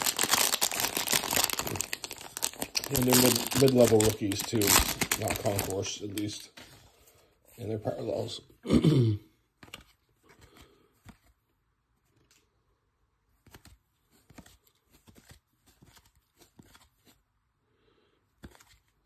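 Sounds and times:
cards sliding and clicking: 9.6 - 11.4, 13.4 - 17.2, 18.3 - 19.0.

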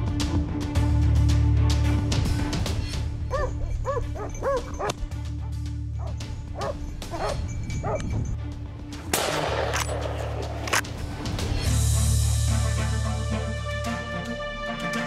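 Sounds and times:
background music: 0.0 - 15.0
dog barking: 3.3 - 5.0, 6.0 - 8.0.

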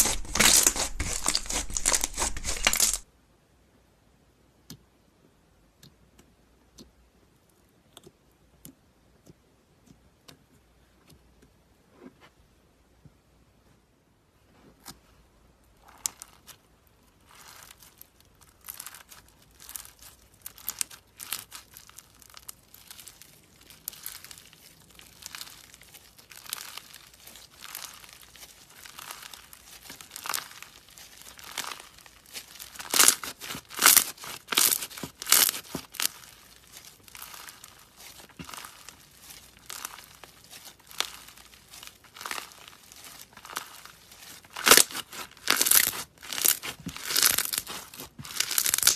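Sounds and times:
slime crackling and popping: 0.0 - 3.0, 15.8 - 48.9.

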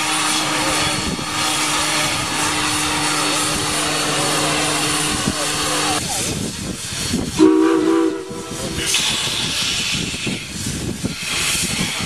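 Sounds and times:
steam hissing: 0.0 - 12.0
steam locomotive whistle toot: 7.4 - 8.9.

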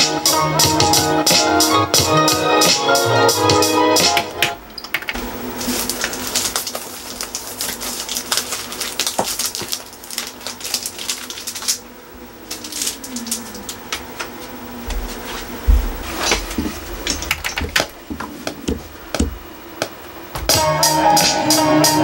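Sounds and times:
record jackets flipped through: 4.0 - 11.8.

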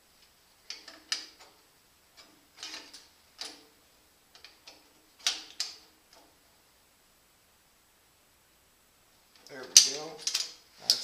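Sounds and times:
wrench clicking and scraping on nut: 2.2 - 3.7.

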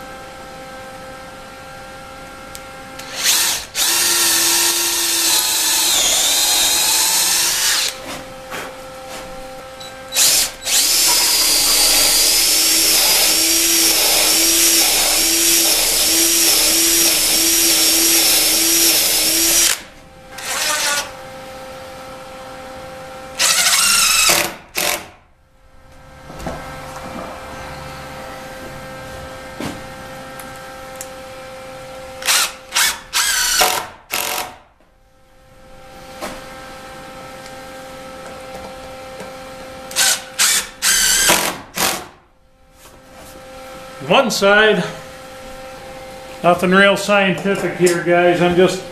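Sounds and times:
cordless drill whining: 2.5 - 8.0, 8.8 - 21.2, 23.3 - 25.0, 32.1 - 34.6, 38.5 - 42.0
impact driver driving screws: 3.0 - 8.0, 10.1 - 21.1, 23.4 - 25.2, 32.2 - 34.6, 39.9 - 42.2.

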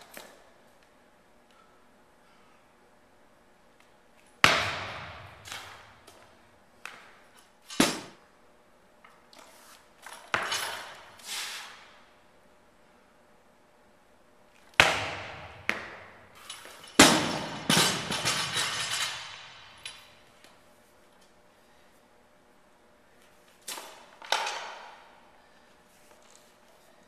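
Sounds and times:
barbell bouncing and rattling: 14.8 - 20.2.

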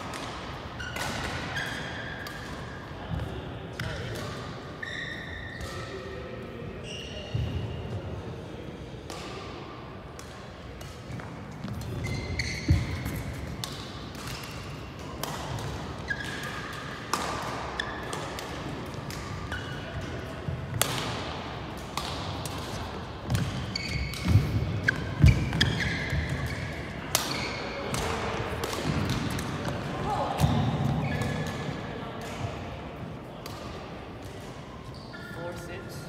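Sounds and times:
shoes squeaking on court: 0.8 - 2.2, 4.8 - 5.9, 6.8 - 7.8, 11.1 - 14.9, 15.6 - 16.9, 17.7 - 20.3, 22.7 - 28.2, 30.4 - 31.7, 34.6 - 35.8
racket striking shuttlecock: 12.4 - 19.8, 20.7 - 32.5.

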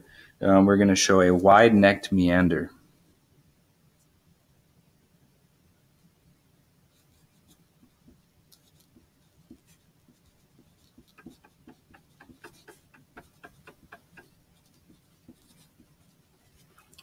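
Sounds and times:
pencil scratching on paper: 6.9 - 16.9.

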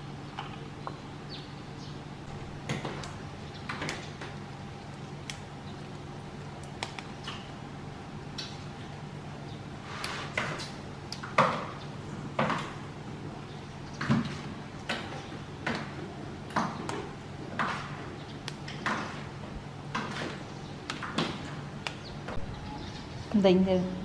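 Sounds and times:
leaves snapping off stems: 5.2 - 5.5, 6.6 - 7.5.

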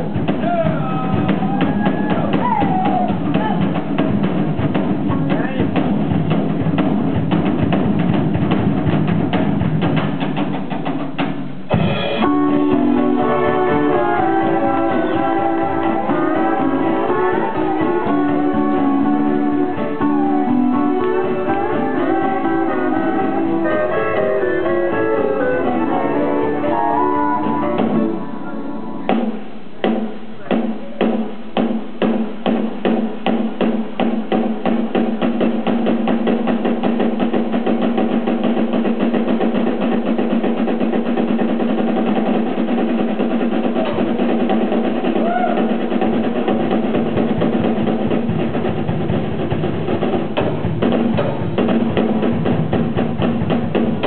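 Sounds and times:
drum roll: 0.0 - 54.0
western swing band playing: 0.0 - 54.0
steel guitar: 12.0 - 29.1.

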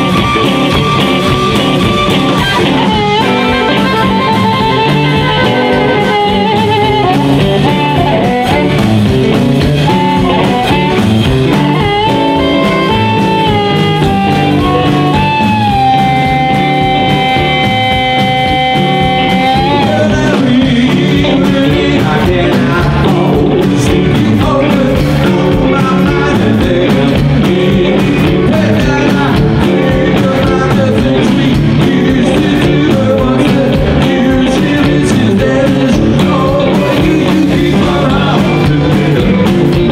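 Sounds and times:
amplified harmonica solo: 0.0 - 8.7, 9.8 - 20.1
person singing: 0.0 - 8.8, 9.8 - 39.9
live blues band: 0.0 - 39.9.

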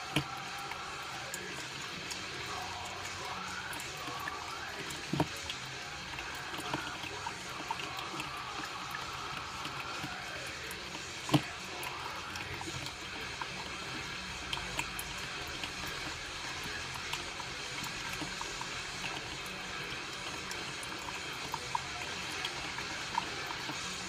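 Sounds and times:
coffee maker hissing and gurgling: 0.0 - 24.0
small drips and ticks: 0.0 - 24.0.

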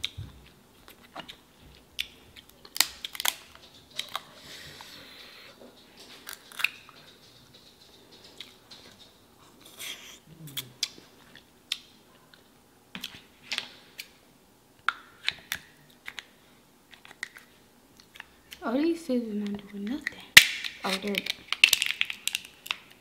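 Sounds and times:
shellfish shells cracking: 2.0 - 4.3, 20.3 - 23.0
person humming low: 10.2 - 10.8.

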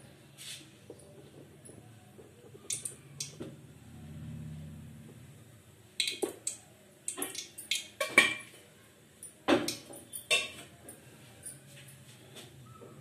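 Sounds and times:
metal utensils clinking: 9.7 - 10.8.

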